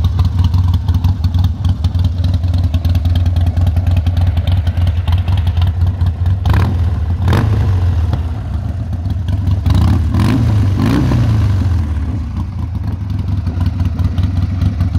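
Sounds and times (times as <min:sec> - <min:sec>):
motorcycle engine running: 0:00.0 - 0:14.9.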